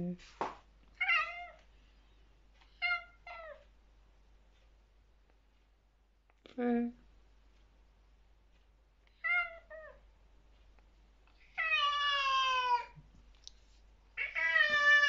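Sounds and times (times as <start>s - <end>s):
cat yowling: 1.0s - 1.6s, 9.2s - 10.0s, 11.5s - 13.0s, 14.2s - 15.0s.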